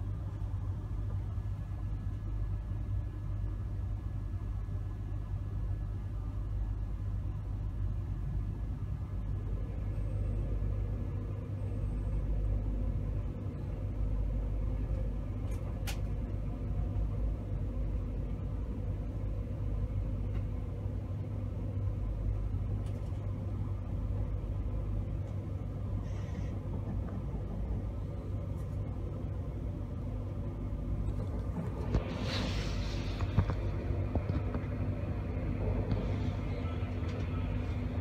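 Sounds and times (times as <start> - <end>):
train coach rumble and hum: 0.0 - 38.0
brief hiss: 32.0 - 33.4.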